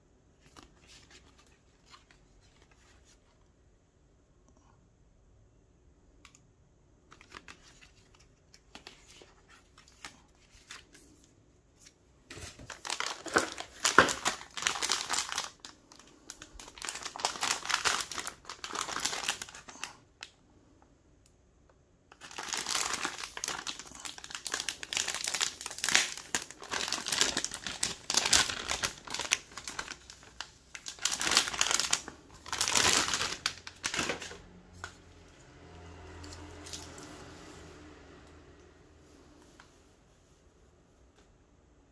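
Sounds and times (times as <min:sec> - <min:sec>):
packaging rustling and crinkling: 0:07.1 - 0:20.0, 0:22.1 - 0:35.1.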